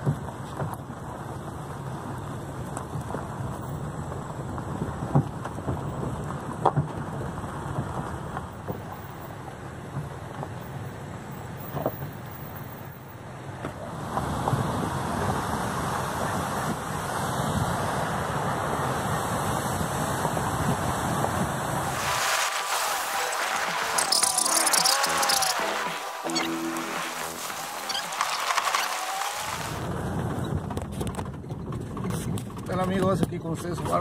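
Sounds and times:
vehicle rumbling on dirt road: 0:00.0 - 0:34.0
knocks and rattles from bumps: 0:30.2 - 0:34.0.

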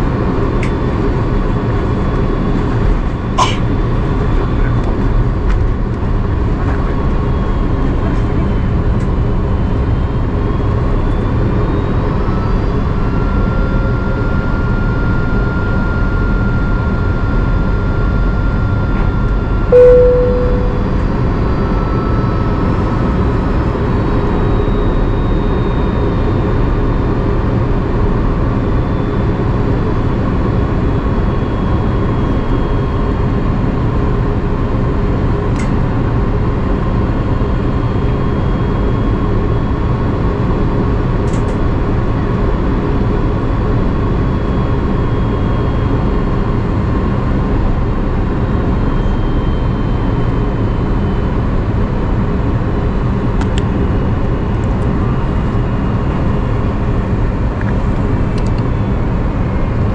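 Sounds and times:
aircraft cabin engine rush: 0:00.0 - 0:19.9, 0:20.9 - 0:59.9
short tone: 0:19.7 - 0:22.2.

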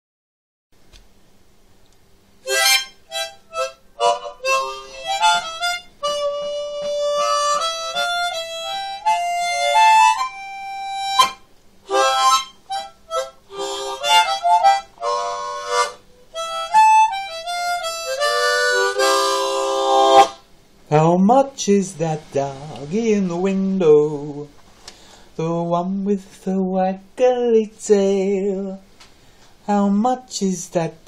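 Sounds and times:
harmonica playing a melody: 0:02.4 - 0:20.5.

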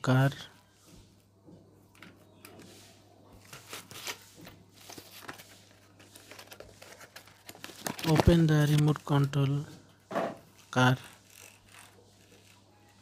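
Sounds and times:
handling clicks and rustles: 0:04.8 - 0:09.6.

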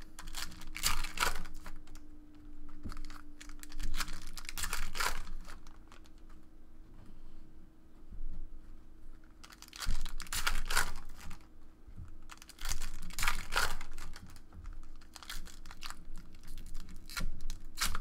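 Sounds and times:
cards being handled: 0:00.0 - 0:02.0, 0:02.7 - 0:06.3, 0:09.2 - 0:11.5, 0:12.2 - 0:18.0
foil pack tearing open: 0:00.0 - 0:02.0, 0:02.9 - 0:06.1, 0:09.4 - 0:11.4, 0:12.3 - 0:18.0.

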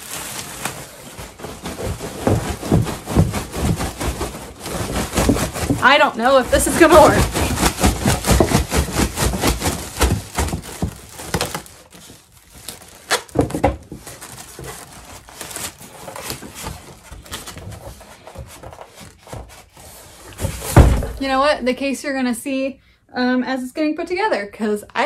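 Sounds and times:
cardboard box rustling and scraping: 0:00.0 - 0:21.4.

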